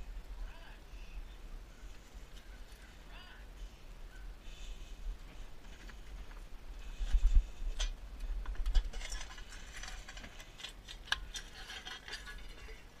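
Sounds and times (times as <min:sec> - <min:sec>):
goats crunching feed: 0:05.3 - 0:13.0.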